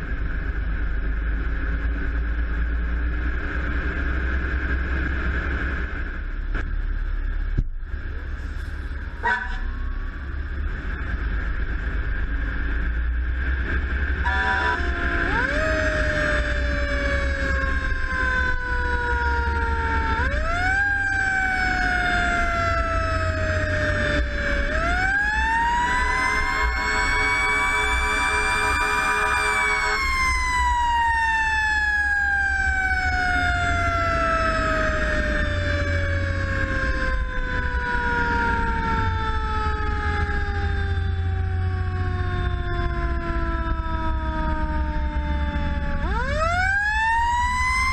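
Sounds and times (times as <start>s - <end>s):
truck low rumble: 0.0s - 47.9s
fire engine siren wailing: 8.4s - 10.5s, 12.4s - 47.9s
steady multi-note tone: 24.9s - 31.3s.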